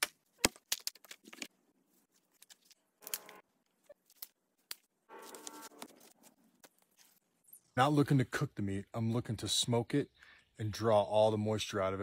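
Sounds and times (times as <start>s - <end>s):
dry sticks snapping: 2.4s - 3.4s.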